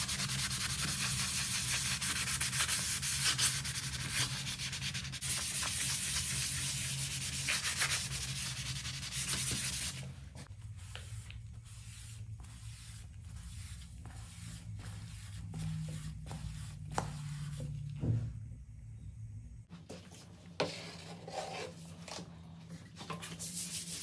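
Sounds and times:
sponge scrubbing shower wall: 0:00.0 - 0:10.1
soft wiping: 0:00.0 - 0:18.0.

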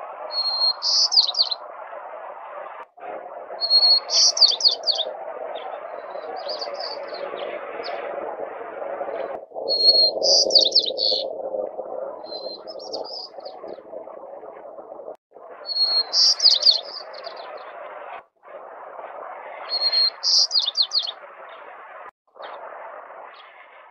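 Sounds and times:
sparrow singing: 0:00.3 - 0:01.6, 0:03.6 - 0:08.0, 0:09.7 - 0:11.3, 0:12.2 - 0:13.7, 0:15.7 - 0:17.6, 0:19.7 - 0:21.2.

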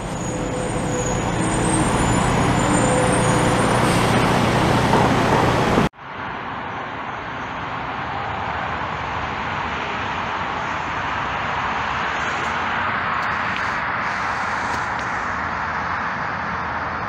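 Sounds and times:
freight train rolling past: 0:00.0 - 0:05.9
cars passing close: 0:00.0 - 0:17.0.

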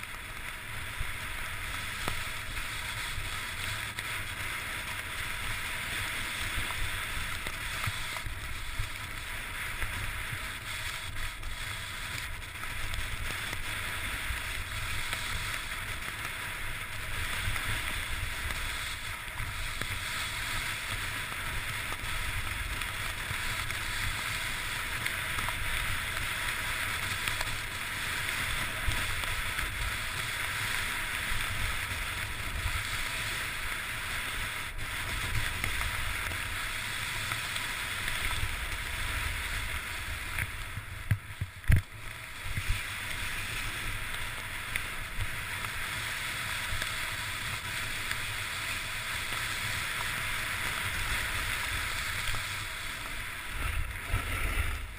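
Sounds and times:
hiss of sliding over snow: 0:00.0 - 0:54.9
wind on microphone: 0:53.4 - 0:54.9.

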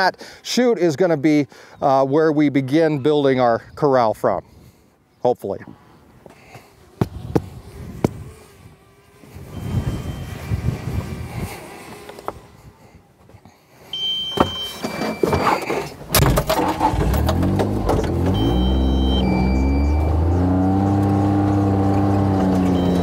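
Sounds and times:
electronic warning beeps: 0:09.5 - 0:10.4, 0:13.9 - 0:15.9, 0:18.3 - 0:20.3, 0:22.7 - 0:23.0
diesel engine starting and running: 0:14.0 - 0:23.0.

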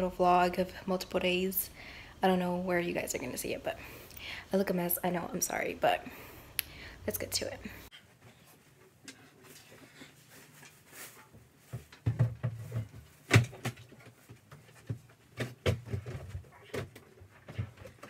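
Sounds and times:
rustling: 0:07.8 - 0:18.0
knocks and thumps: 0:11.7 - 0:18.0.

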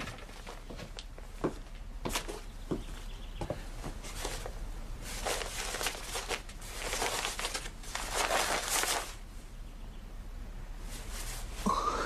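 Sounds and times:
fabric rustling and crinkling: 0:00.0 - 0:03.0, 0:03.8 - 0:09.3, 0:10.8 - 0:11.7.

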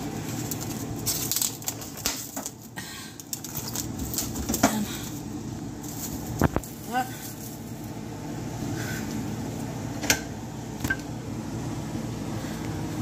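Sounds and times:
plastic wrap crinkling: 0:00.0 - 0:08.0.

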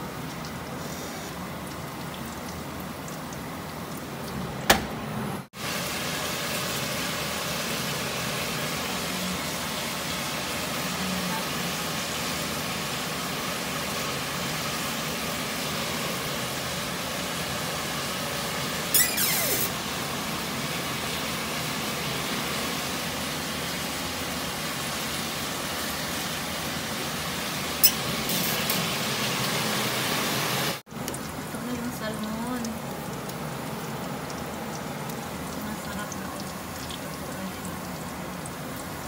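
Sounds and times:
oven rushing hiss: 0:18.9 - 0:19.8.

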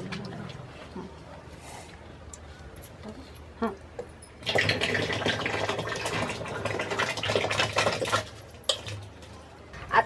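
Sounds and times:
thick liquid splashing pour: 0:04.4 - 0:08.9.

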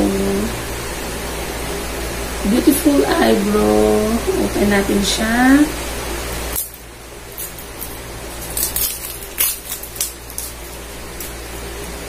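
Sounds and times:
plastic packaging clicks and crinkles: 0:06.5 - 0:12.0.

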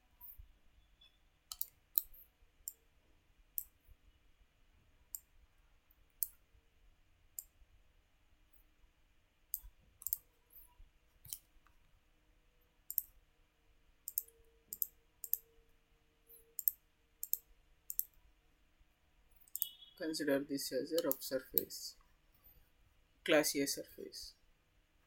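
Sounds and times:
faint steady hum: 0:00.0 - 0:25.0
mouse button clicks: 0:19.5 - 0:19.9.

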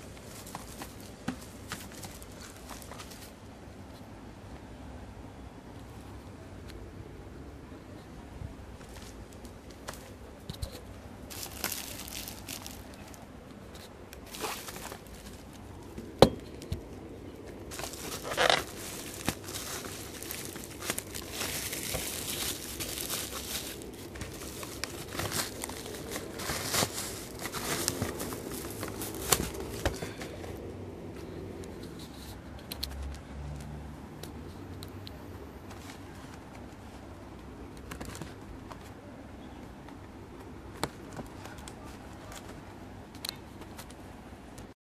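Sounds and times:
bubble wrap crinkling: 0:08.8 - 0:30.7.

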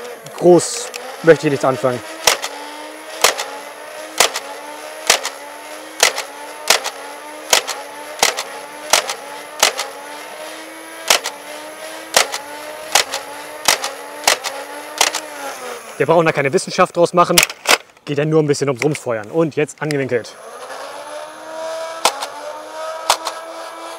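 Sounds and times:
trigger clack: 0:02.2 - 0:02.6, 0:03.2 - 0:03.6, 0:04.2 - 0:04.5, 0:05.1 - 0:05.4, 0:06.0 - 0:10.0, 0:11.1 - 0:11.4, 0:12.1 - 0:15.3, 0:17.3 - 0:18.0, 0:22.0 - 0:22.4, 0:23.0 - 0:23.4
toy blaster firing darts: 0:02.2 - 0:10.0, 0:11.0 - 0:11.4, 0:12.1 - 0:15.8, 0:22.0 - 0:22.4, 0:23.0 - 0:23.6.

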